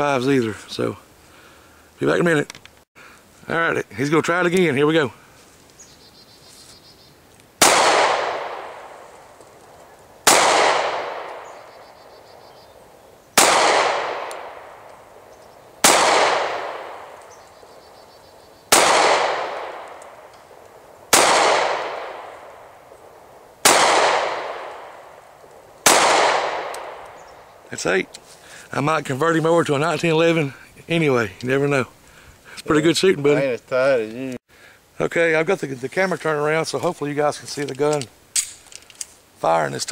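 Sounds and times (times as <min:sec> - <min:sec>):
pistol shots with echo: 0:07.6 - 0:09.0, 0:10.2 - 0:11.8, 0:13.4 - 0:14.9, 0:15.8 - 0:17.2, 0:18.7 - 0:20.3, 0:21.1 - 0:22.8, 0:23.6 - 0:25.2, 0:25.8 - 0:27.2.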